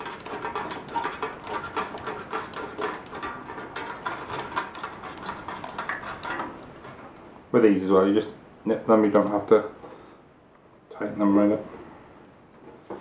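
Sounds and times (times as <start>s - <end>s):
light bulb thread clicks and scrapes: 0.0s - 7.0s.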